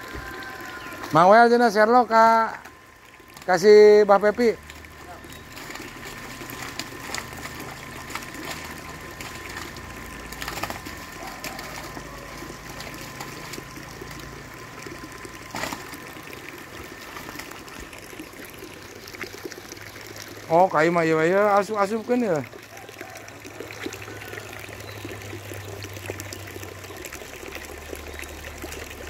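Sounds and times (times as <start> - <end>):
water splashes: 0.0 - 29.0
water trickling: 0.0 - 29.0.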